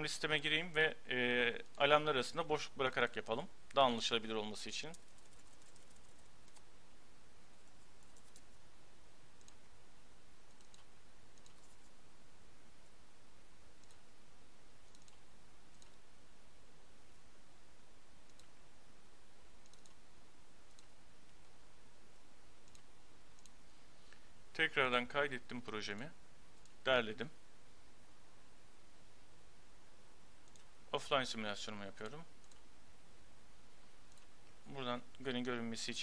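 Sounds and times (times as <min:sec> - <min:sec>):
steady low hiss: 0:00.0 - 0:36.0
mouse and keyboard clicks: 0:08.0 - 0:08.5, 0:10.5 - 0:11.9, 0:14.9 - 0:16.0, 0:19.6 - 0:20.0.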